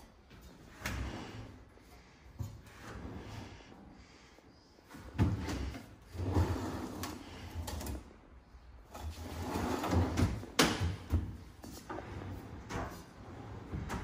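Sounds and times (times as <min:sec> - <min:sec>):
metal drawers sliding: 0:08.9 - 0:14.0.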